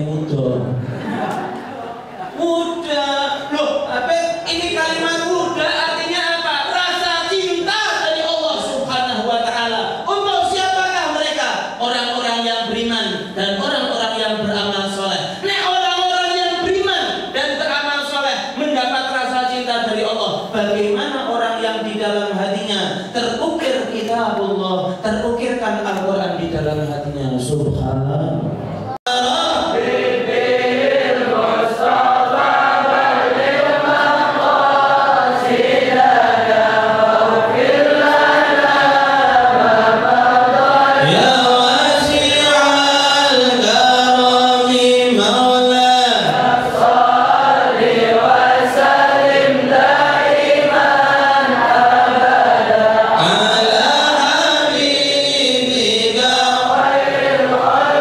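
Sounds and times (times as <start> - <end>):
voices chanting devotional song: 29.1 - 58.0.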